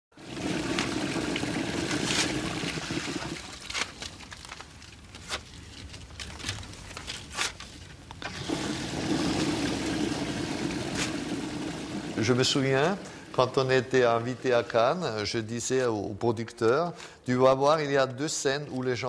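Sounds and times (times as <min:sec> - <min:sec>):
toilet flushing: 0:00.1 - 0:03.6, 0:08.2 - 0:14.6.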